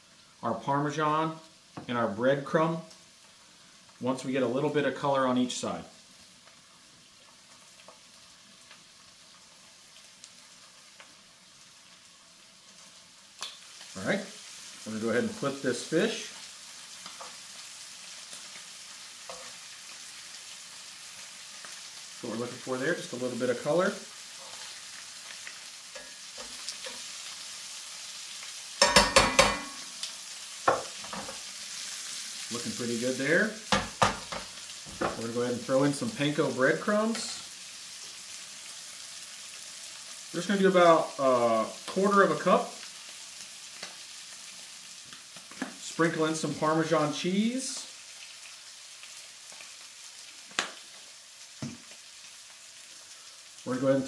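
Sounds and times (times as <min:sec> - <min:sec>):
fish frying in skillet: 0:00.0 - 0:54.0
metal tongs knocking on pan: 0:28.8 - 0:29.8.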